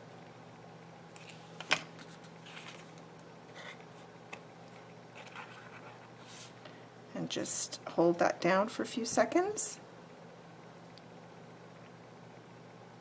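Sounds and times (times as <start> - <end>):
paper rustling: 2.0 - 3.8, 5.1 - 6.6.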